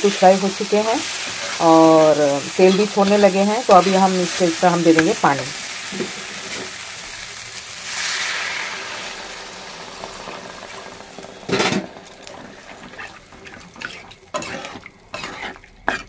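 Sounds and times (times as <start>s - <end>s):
water hissing in hot oil: 0.0s - 16.0s
metal spatula scraping pan: 11.5s - 16.0s.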